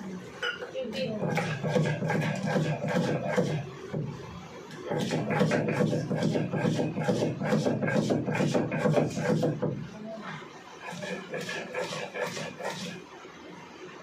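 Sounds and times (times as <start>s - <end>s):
stone grinding on stone: 1.3s - 3.6s, 10.8s - 13.0s.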